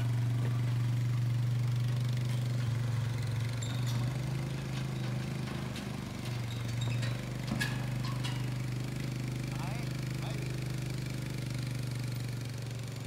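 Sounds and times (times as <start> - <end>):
engine idling: 0.0 - 13.0
light metallic clinks: 2.2 - 9.1.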